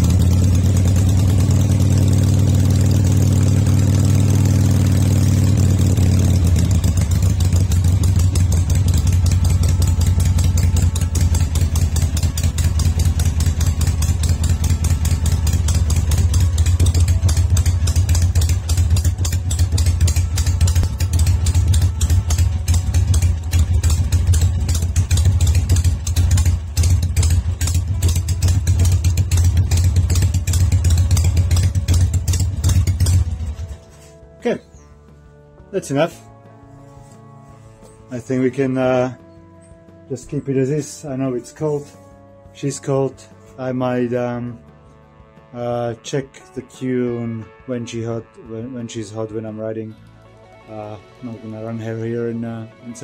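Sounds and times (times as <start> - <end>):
motorcycle engine idling unevenly: 0.0 - 34.8.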